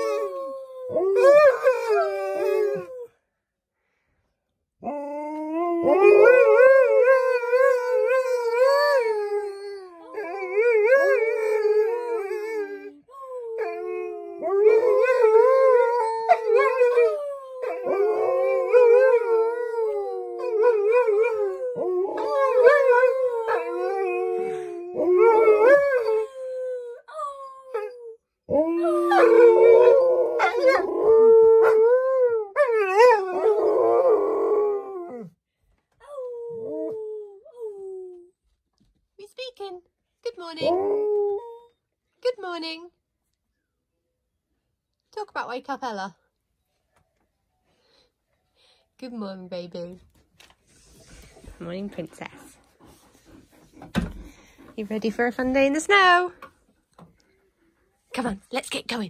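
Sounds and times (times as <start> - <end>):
dogs howling: 4.8 - 26.9, 27.7 - 35.3.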